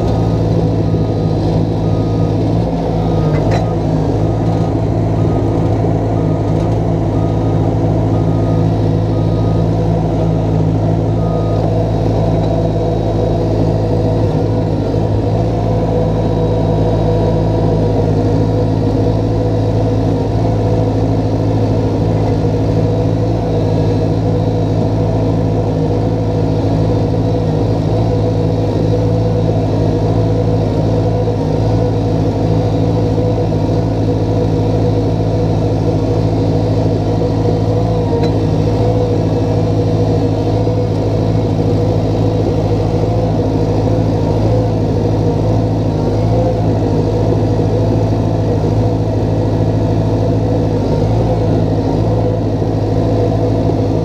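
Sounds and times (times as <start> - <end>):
diesel engine running steadily: 0.0 - 54.0.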